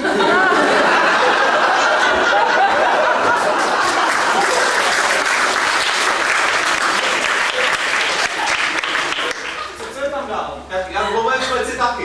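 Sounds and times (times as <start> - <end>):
voices laughing: 0.0 - 5.2, 7.0 - 10.0
audience applauding: 1.7 - 9.8.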